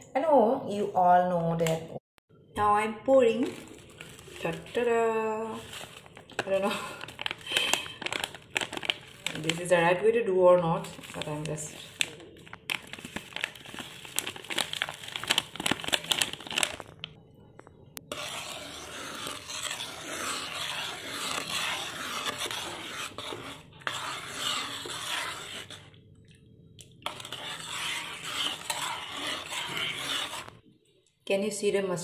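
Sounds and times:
spatula stirring and scraping pan: 0:03.5 - 0:10.0, 0:18.0 - 0:26.0, 0:27.0 - 0:30.6
plastic packet crinkling: 0:05.6 - 0:09.7, 0:10.9 - 0:17.2.

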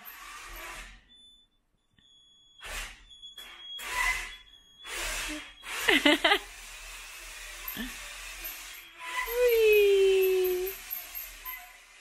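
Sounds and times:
screwdriver motor running: 0:02.6 - 0:12.0
thin high whine: 0:07.2 - 0:12.0.

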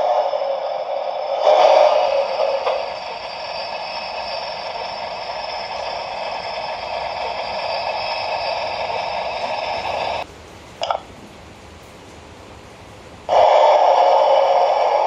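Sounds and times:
model steam locomotive hiss: 0:00.0 - 0:10.3, 0:13.3 - 0:15.0.

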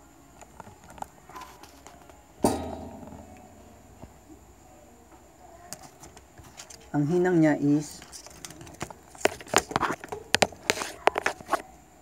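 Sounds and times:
loud ringing knock: 0:02.4 - 0:04.6.

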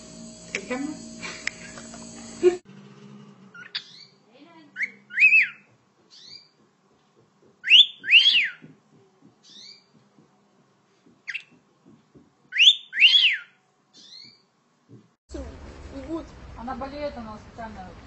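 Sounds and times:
cockatiel whistling: 0:07.6 - 0:08.6, 0:12.5 - 0:14.3.

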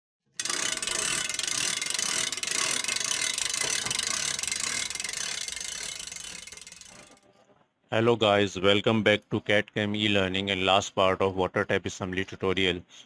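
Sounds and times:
ratchet mechanism clicking: 0:00.4 - 0:07.4.

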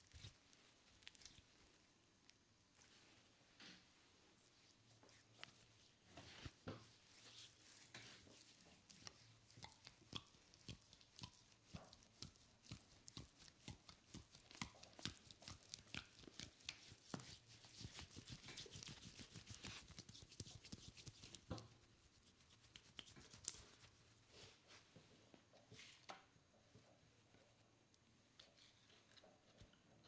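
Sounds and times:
wet smacks and squelches: 0:08.4 - 0:21.5.

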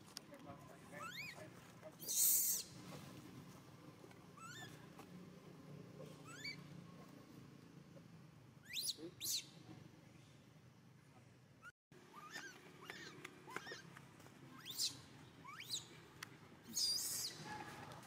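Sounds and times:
baby monkey squealing cries: 0:01.0 - 0:01.4, 0:02.0 - 0:02.7, 0:04.4 - 0:04.8, 0:06.2 - 0:06.7, 0:08.6 - 0:09.5, 0:12.1 - 0:13.9, 0:14.5 - 0:15.9, 0:16.7 - 0:17.4.

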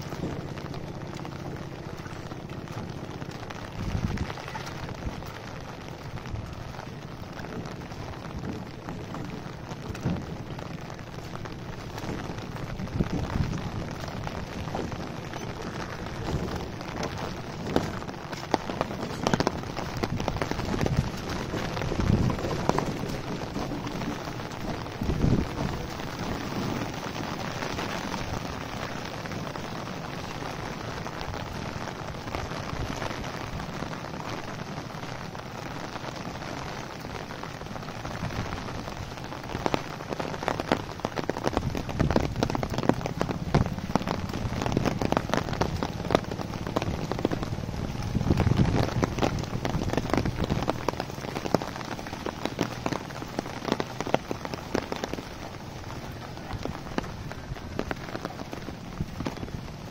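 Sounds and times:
close raindrop hits: 0:00.0 - 0:59.9
heavy rain on road and leaves: 0:00.0 - 0:59.9.

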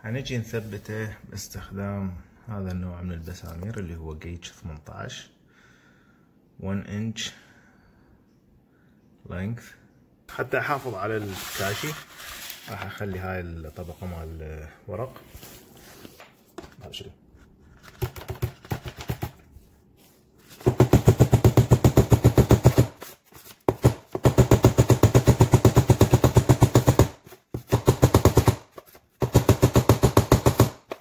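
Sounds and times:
hammer striking nails: 0:20.6 - 0:23.0, 0:23.7 - 0:31.0.

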